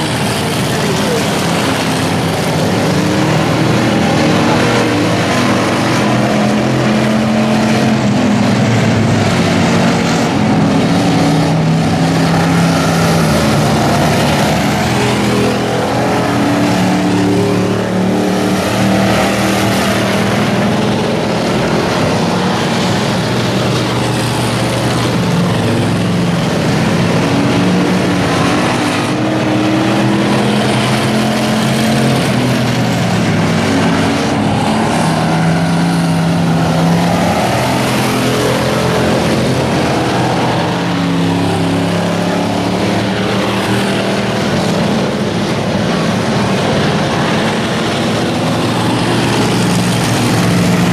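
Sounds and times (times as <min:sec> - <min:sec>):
race car engines: 0:00.0 - 0:50.9.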